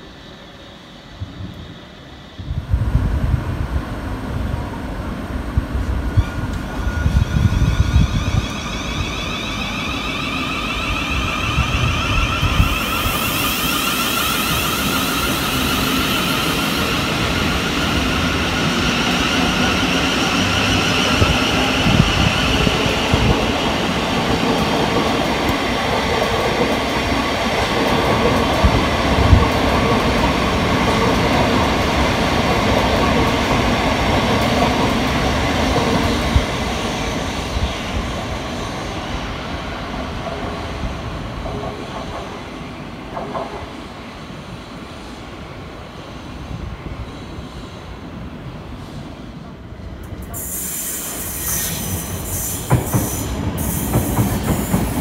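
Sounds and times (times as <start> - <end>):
high hiss: 8.0 - 25.7, 47.0 - 55.0.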